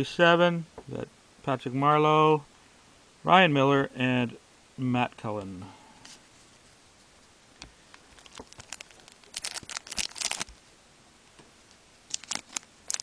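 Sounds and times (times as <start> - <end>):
foil wrapper crinkling: 8.0 - 10.6, 12.1 - 13.0.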